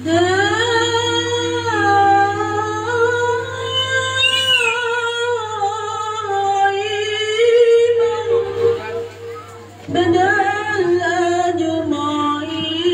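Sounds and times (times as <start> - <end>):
girl singing through pa system: 9.9 - 12.9.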